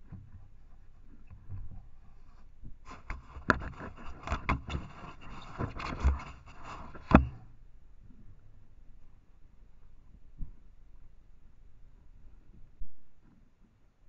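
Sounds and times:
scraping against camera body: 0:01.1 - 0:07.5.

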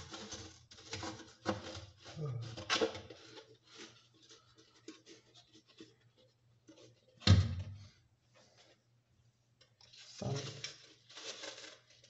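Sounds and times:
plastic parts scraping and clicking: 0:00.0 - 0:07.2.

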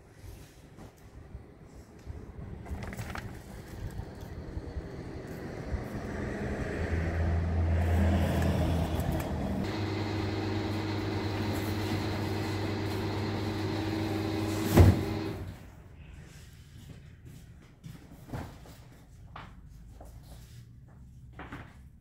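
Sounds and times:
low mechanical hum: 0:00.0 - 0:06.8, 0:07.7 - 0:16.8
passing motor vehicle engine: 0:02.5 - 0:15.6.

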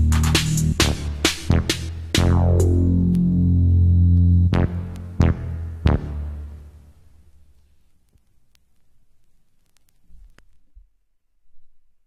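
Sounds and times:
vinyl record rumble: 0:00.0 - 0:11.0
vinyl crackle clicks: 0:03.0 - 0:03.4, 0:04.1 - 0:05.1, 0:07.5 - 0:10.7.

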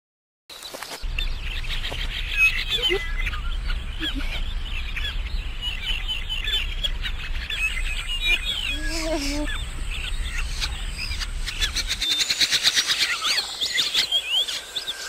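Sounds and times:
birds chirping: 0:00.5 - 0:15.0
low rumble: 0:01.0 - 0:12.2.

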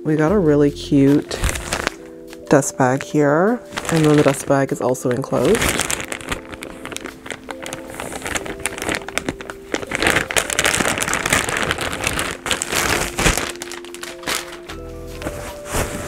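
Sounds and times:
light background music: 0:00.0 - 0:16.0
packaging crinkling and rustling: 0:01.1 - 0:16.0.

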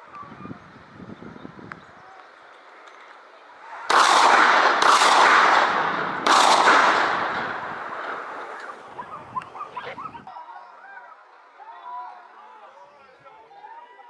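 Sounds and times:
shotgun shots echoing: 0:03.8 - 0:08.9.

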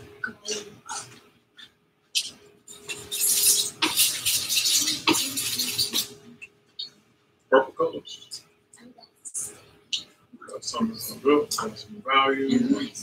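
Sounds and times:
painting tools scrubbing and scraping: 0:02.2 - 0:06.3.

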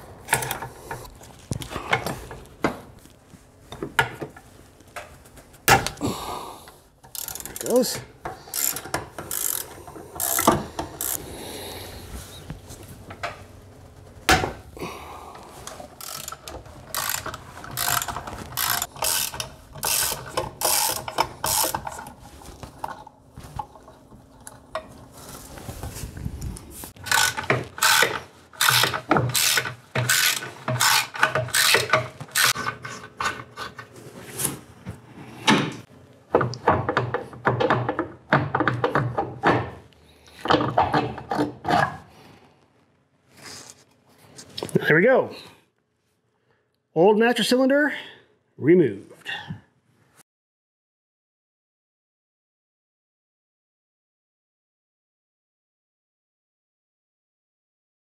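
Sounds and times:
socket ratchet clicking: 0:07.1 - 0:07.7, 0:08.5 - 0:11.2, 0:16.0 - 0:22.0.

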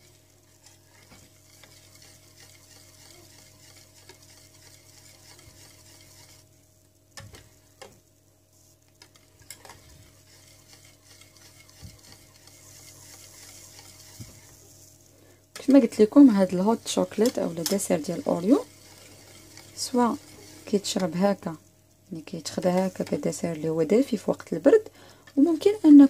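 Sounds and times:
whisk swishing in a saucepan: 0:00.0 - 0:06.5, 0:09.0 - 0:26.0
whisk clicking against pan: 0:00.6 - 0:06.4, 0:09.0 - 0:14.6, 0:15.6 - 0:21.4.

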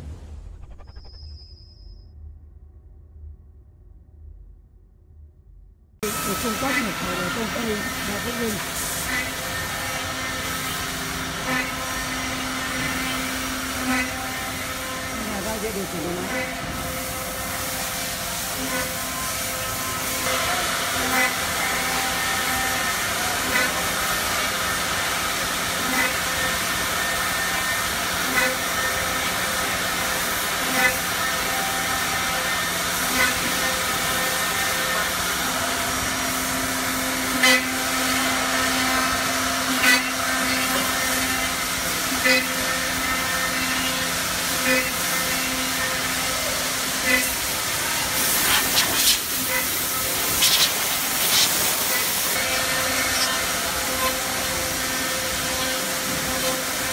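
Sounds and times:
short sharp machine sound: 0:06.0 - 0:43.9
router spindles whining: 0:06.0 - 0:56.9.

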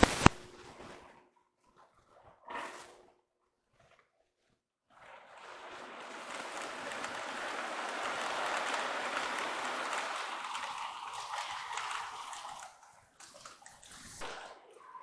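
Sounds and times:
toy train rattling on track: 0:05.4 - 0:13.8.

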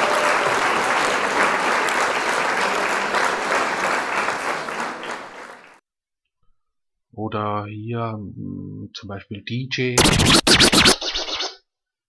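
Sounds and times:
crowd clapping: 0:00.0 - 0:05.8.

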